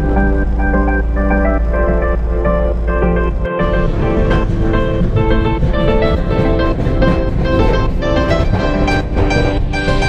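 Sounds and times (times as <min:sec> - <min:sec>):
melodic plucked notes: 0:00.0 - 0:10.0
steady low beat: 0:00.0 - 0:10.0.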